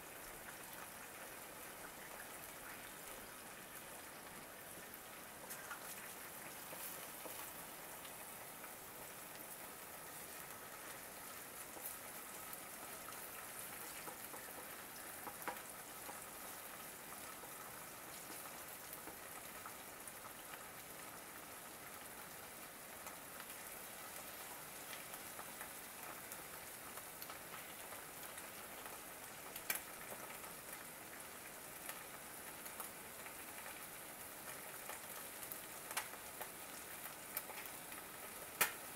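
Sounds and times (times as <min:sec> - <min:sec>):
food sizzling in hot oil: 0:00.0 - 0:38.9.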